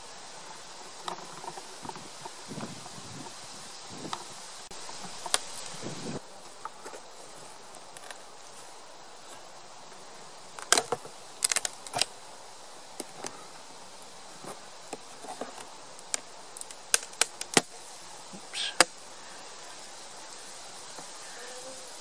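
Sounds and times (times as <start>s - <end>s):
bees buzzing: 17.8s - 22.0s.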